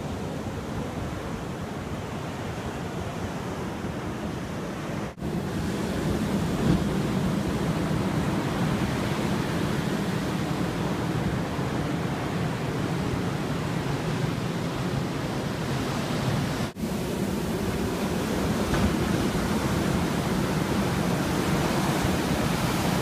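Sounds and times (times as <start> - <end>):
ocean surf breaking on a beach: 0.0 - 23.0.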